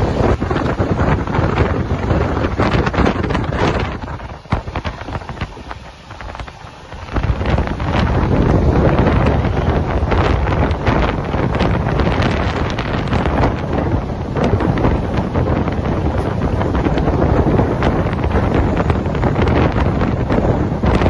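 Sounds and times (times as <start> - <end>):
train coach rumbling on track: 0.0 - 21.0
wind buffeting microphone: 0.0 - 21.0.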